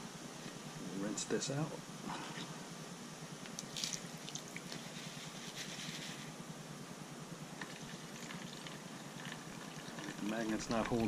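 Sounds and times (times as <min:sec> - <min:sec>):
water sloshing and splashing: 0:03.6 - 0:05.2, 0:07.6 - 0:11.0.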